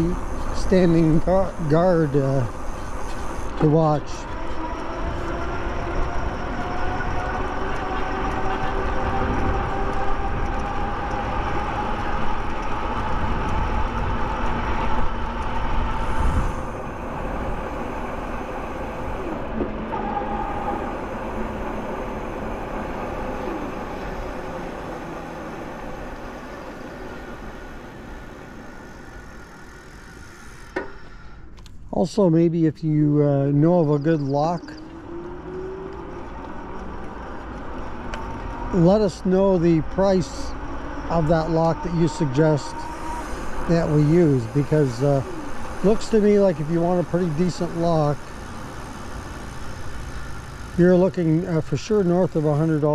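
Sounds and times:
wind rumbling on microphone: 0:00.0 - 0:30.6
electric motor whine: 0:00.0 - 0:30.9, 0:34.3 - 0:52.9
tyre noise on pavement: 0:00.0 - 0:31.0, 0:33.4 - 0:52.9.

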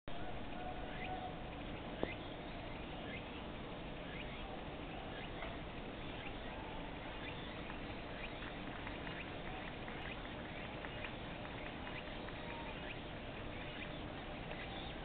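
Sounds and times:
steady background noise: 0:00.1 - 0:15.0
short high chirping calls: 0:11.8 - 0:15.0.

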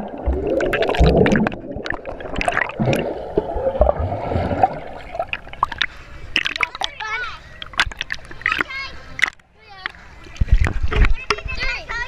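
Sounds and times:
low underwater thumps: 0:00.0 - 0:06.9
underwater bubbles gurgling: 0:00.0 - 0:09.4
underwater clicks: 0:05.2 - 0:11.6.

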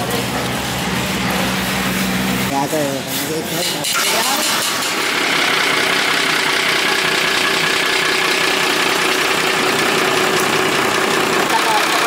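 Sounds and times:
diesel engine idling: 0:04.4 - 0:12.0.

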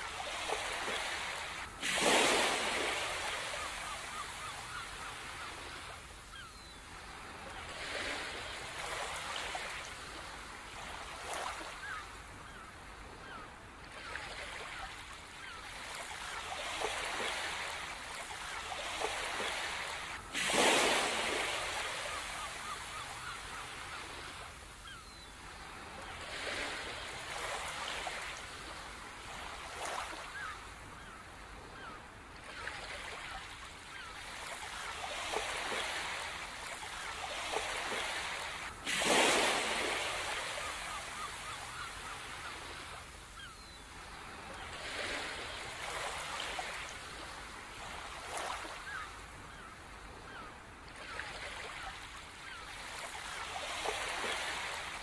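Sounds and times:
sea waves washing onto shore: 0:00.0 - 0:12.1, 0:15.4 - 0:30.6, 0:33.9 - 0:49.7.

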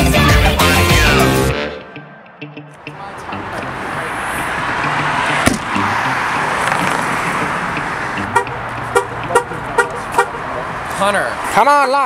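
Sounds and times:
car passing by: 0:02.8 - 0:11.7.

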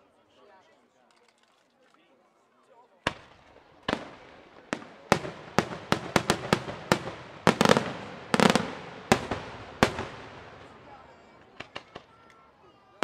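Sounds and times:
fireworks bangs: 0:03.1 - 0:12.3
rolls of firework reports: 0:03.1 - 0:12.3.

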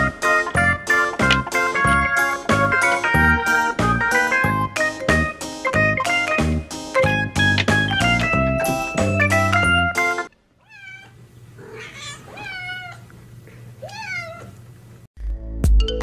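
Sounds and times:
cat meowing: 0:10.6 - 0:13.1, 0:13.8 - 0:14.6.

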